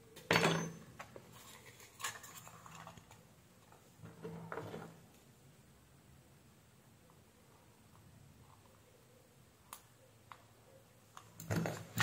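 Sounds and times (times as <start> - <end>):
rustling scrapes: 1.3 - 3.1.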